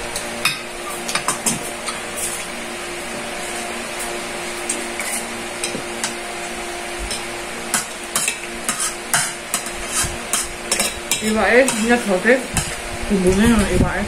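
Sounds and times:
steady hiss and hum: 0:00.0 - 0:14.0.

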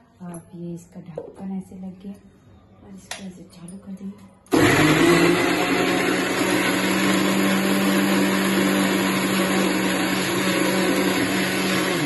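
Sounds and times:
mixer grinder motor hum: 0:04.5 - 0:12.0.

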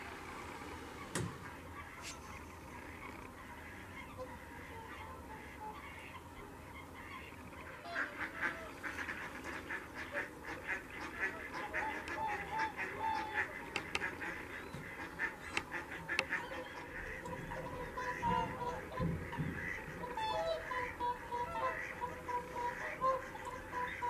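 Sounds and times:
flock of waterfowl calling: 0:00.0 - 0:24.0.

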